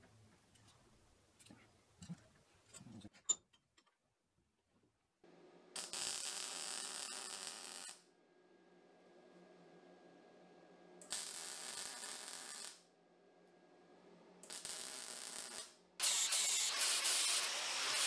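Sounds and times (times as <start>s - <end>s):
welder humming: 14.4s - 18.0s
welder hiss: 15.2s - 18.0s.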